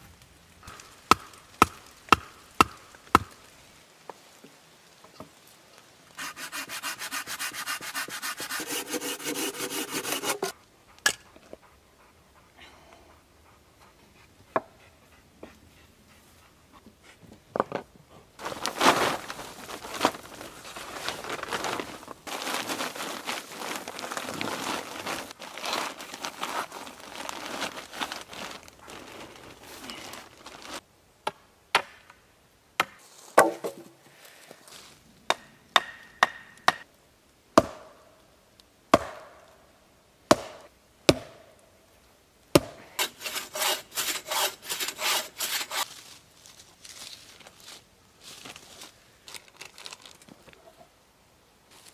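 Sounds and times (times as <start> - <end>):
wood being chopped: 0.6 - 3.4, 32.8 - 33.9, 35.3 - 36.8, 37.6 - 38.0, 38.9 - 39.4, 40.3 - 41.4, 42.5 - 42.8
rustling and handling noise: 17.0 - 30.8, 43.0 - 50.9, 51.7 - 51.9.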